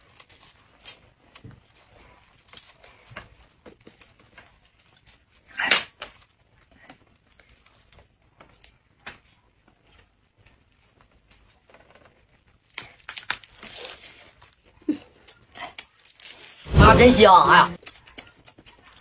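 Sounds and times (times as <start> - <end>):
hands rustling wraps: 0.0 - 14.8.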